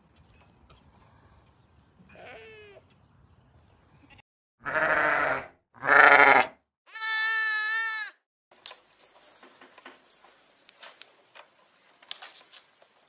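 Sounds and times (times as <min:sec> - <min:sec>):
sheep bleating: 0:02.1 - 0:02.8, 0:04.6 - 0:08.2.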